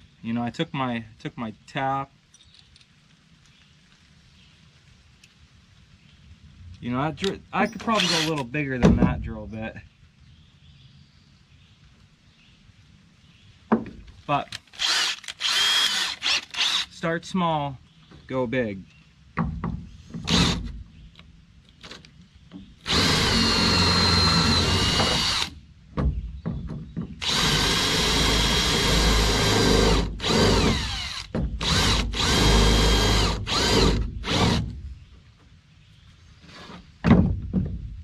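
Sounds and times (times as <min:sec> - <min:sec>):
cordless drill boring into metal: 0:07.6 - 0:08.5, 0:14.8 - 0:17.0, 0:20.3 - 0:20.7, 0:22.8 - 0:25.6, 0:27.2 - 0:34.7.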